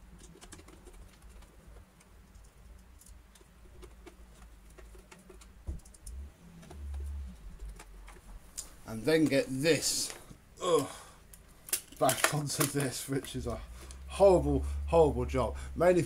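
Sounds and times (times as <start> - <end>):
plastic parts clicking: 11.2 - 14.0.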